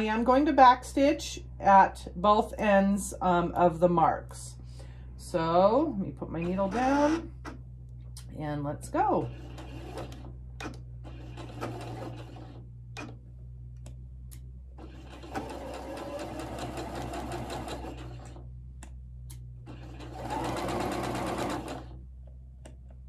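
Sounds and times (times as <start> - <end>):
sewing machine stitching: 6.4 - 7.6, 9.2 - 13.2, 14.8 - 18.4, 19.6 - 22.0.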